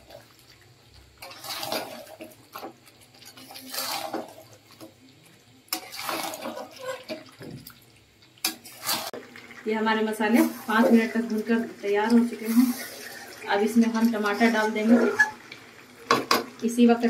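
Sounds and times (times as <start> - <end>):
metal spatula scraping pan: 1.2 - 4.4, 5.7 - 7.2, 8.4 - 9.2, 14.0 - 15.4.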